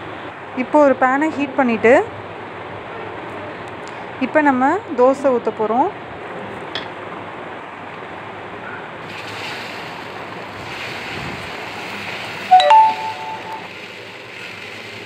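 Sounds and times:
batter sizzling on a hot pan: 9.0s - 12.5s, 13.6s - 15.0s
sharp ringing tone: 12.5s - 13.7s.

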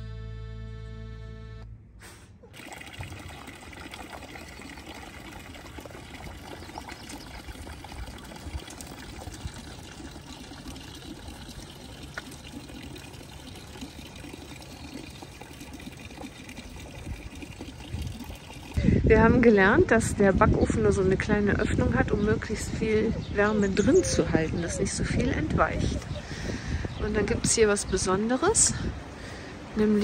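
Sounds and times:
background music: 0.0s - 1.7s
water pouring into trough: 2.4s - 18.8s.

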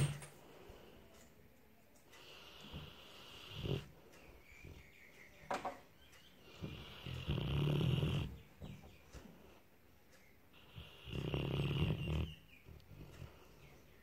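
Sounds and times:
dog snoring: 2.2s - 3.9s, 6.5s - 8.4s, 10.6s - 12.4s.

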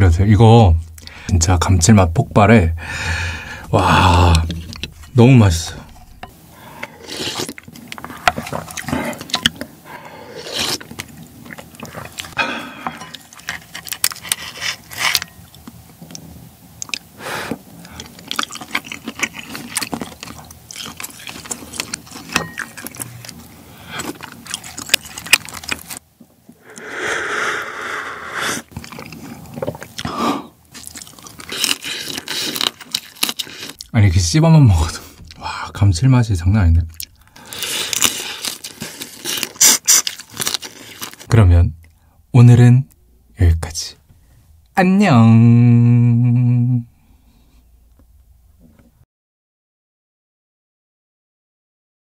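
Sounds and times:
noodle slurping: 2.9s - 9.5s, 36.9s - 41.3s
wet chewing with mouth clicks: 5.8s - 9.7s, 10.4s - 12.4s, 13.0s - 26.9s, 28.6s - 34.0s, 36.8s - 42.0s.

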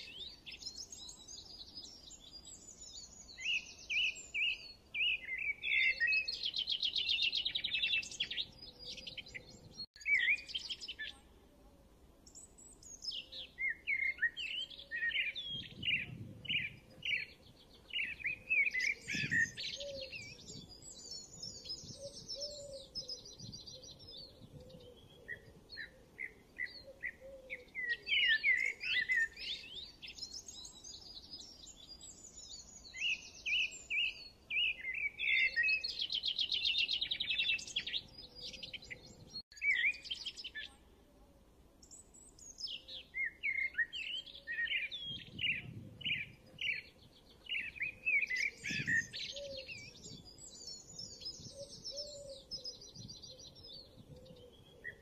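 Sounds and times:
birds chirping and singing: 0.0s - 11.2s, 12.3s - 40.8s, 41.8s - 55.0s.

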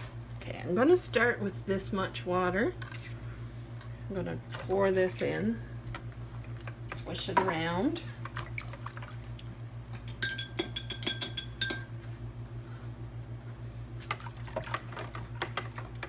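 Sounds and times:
steady low hum: 0.0s - 16.0s
water sloshing in plastic tub: 4.3s - 10.1s, 14.0s - 16.0s.

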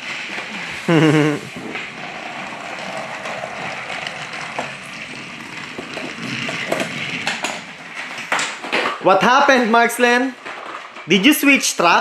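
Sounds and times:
toy train motor whirring: 0.3s - 8.3s.

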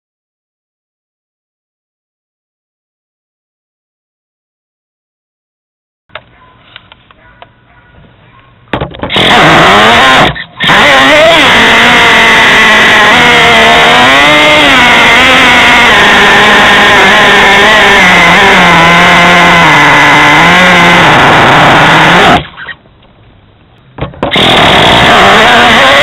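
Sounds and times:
small engine revving: 9.1s - 22.8s, 24.3s - 26.0s.

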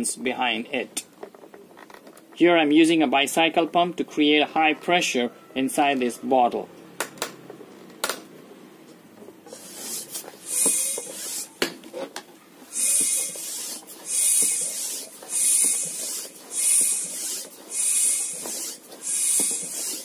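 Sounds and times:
hand pump air hissing: 9.5s - 11.6s, 12.7s - 20.0s.

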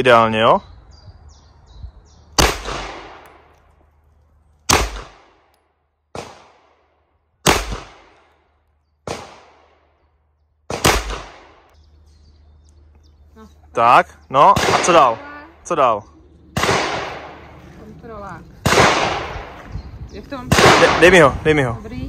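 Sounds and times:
pistol shots with ringing echo: 2.4s - 3.5s, 4.7s - 8.4s, 9.0s - 10.0s, 10.7s - 11.8s, 14.4s - 15.4s, 16.5s - 17.5s, 18.6s - 19.6s, 20.5s - 21.3s.

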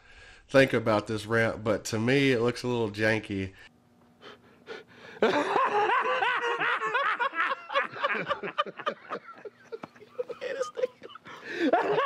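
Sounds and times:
man laughing hard: 5.2s - 12.0s.

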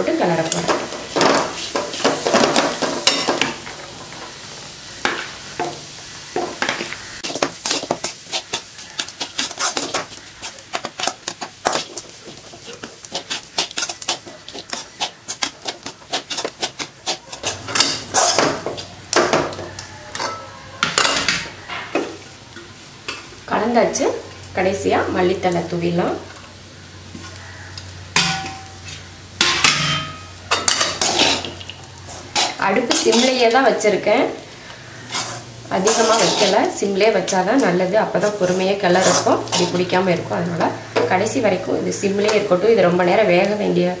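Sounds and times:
metal spatula scraping a pan: 0.5s - 3.7s, 4.4s - 21.6s, 28.2s - 33.9s, 34.5s - 42.6s.

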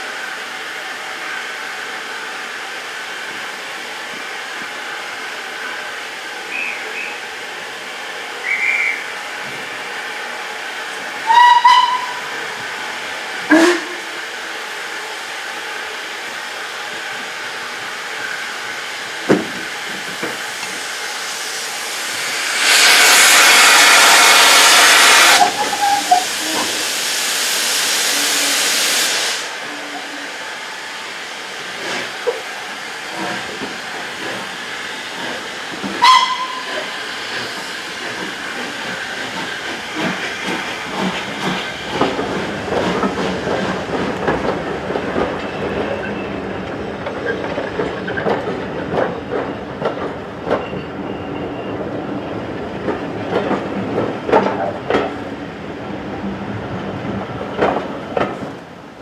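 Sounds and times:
steam locomotive hissing: 0.0s - 58.8s
locomotive whistle: 6.5s - 7.2s, 8.4s - 9.1s, 11.2s - 12.3s, 13.5s - 14.1s, 22.7s - 26.6s, 36.0s - 36.9s
rush of steam from drain cocks: 17.6s - 49.1s.

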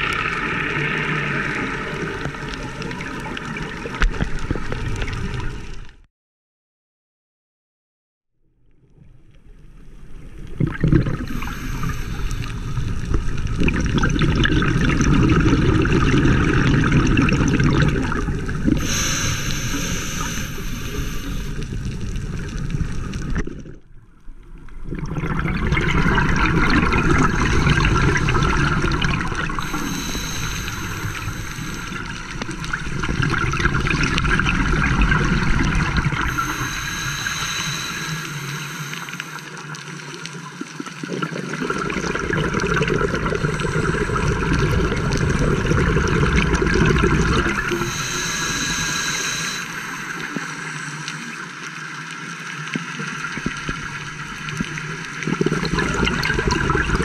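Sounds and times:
exhaled bubbles rushing: 10.4s - 24.0s, 24.6s - 39.8s, 40.8s - 50.9s, 53.0s - 57.0s
regulator breathing hiss: 11.2s - 13.4s, 18.7s - 22.2s, 27.1s - 33.1s, 36.1s - 39.7s, 47.6s - 51.3s.

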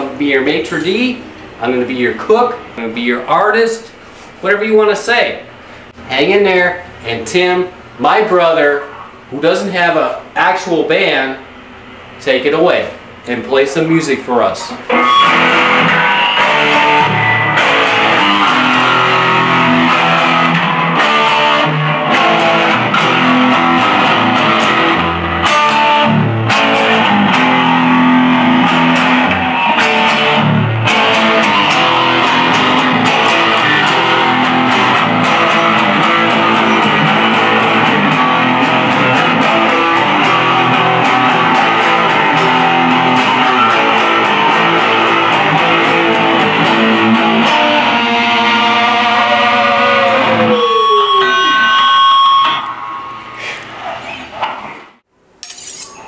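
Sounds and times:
electric guitar through amplifier: 14.7s - 55.0s.

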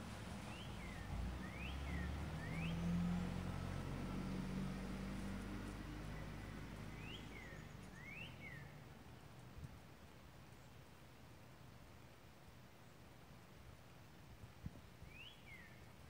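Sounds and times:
bird chirping: 0.4s - 3.1s, 6.0s - 8.8s, 15.1s - 15.8s.

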